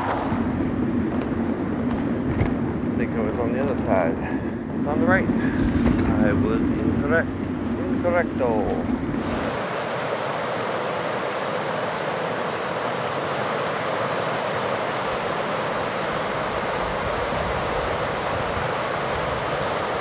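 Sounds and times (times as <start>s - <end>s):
creek rushing over rocks: 9.2s - 20.0s.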